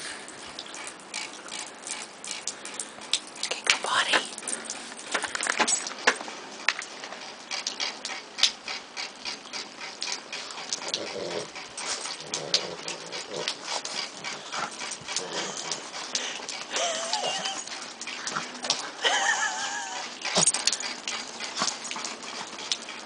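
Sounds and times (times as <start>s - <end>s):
dogs grunting and whining: 7.9s - 23.0s.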